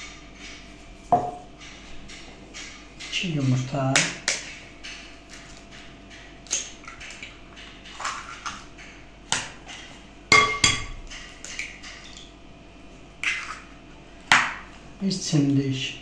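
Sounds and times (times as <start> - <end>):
glass ringing: 1.2 - 1.5, 10.3 - 10.9.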